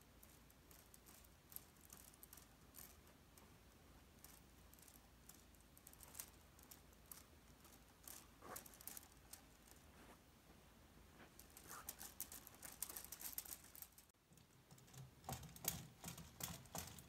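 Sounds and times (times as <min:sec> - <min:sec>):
plastic robot legs clicking: 0:00.2 - 0:03.0, 0:04.2 - 0:09.8, 0:11.4 - 0:14.1, 0:14.7 - 0:17.0.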